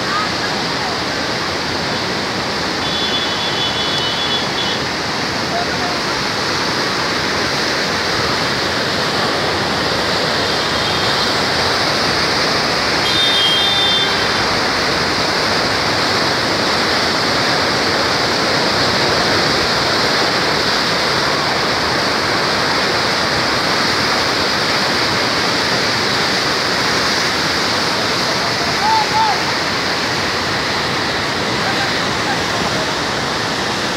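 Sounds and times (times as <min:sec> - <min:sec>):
floodwater rushing: 0:00.0 - 0:33.9.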